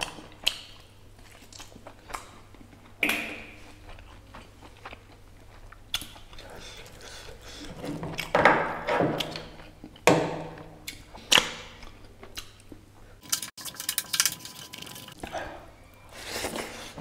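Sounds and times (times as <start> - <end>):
wet chewing clicks: 0.0 - 8.3.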